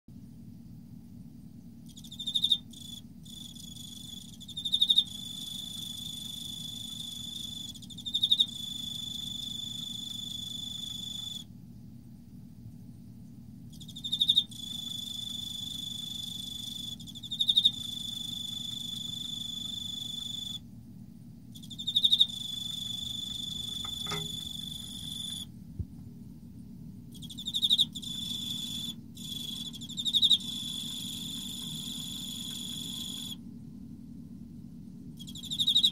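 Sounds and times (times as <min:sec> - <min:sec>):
cricket chirps: 0:01.4 - 0:11.5, 0:13.6 - 0:20.7, 0:21.5 - 0:25.5, 0:27.1 - 0:33.5, 0:35.0 - 0:35.9
cricket trilling: 0:01.8 - 0:11.5, 0:13.7 - 0:20.6, 0:21.5 - 0:25.5, 0:27.1 - 0:33.4, 0:35.2 - 0:35.9.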